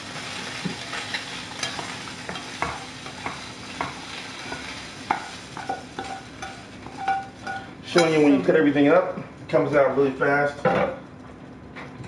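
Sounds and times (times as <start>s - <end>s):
food sizzling: 0.0s - 9.1s
metal utensils clinking on pans: 0.6s - 3.4s, 4.5s - 8.5s.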